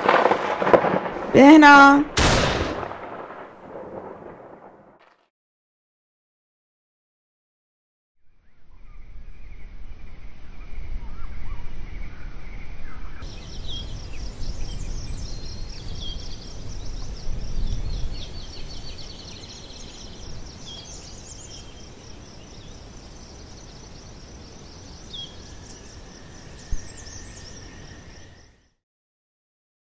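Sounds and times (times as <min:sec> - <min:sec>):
birds chirping and singing: 0:12.0 - 0:28.6.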